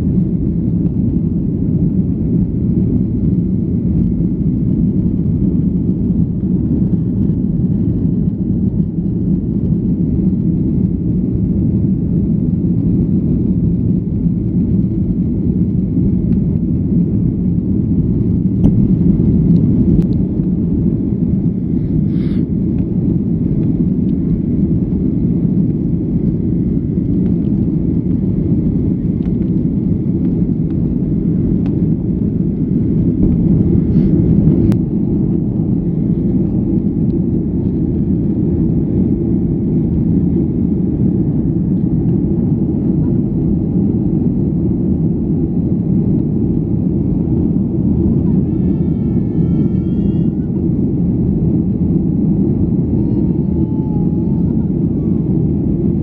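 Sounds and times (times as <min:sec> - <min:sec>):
airliner cabin roar: 0:00.0 - 0:56.0.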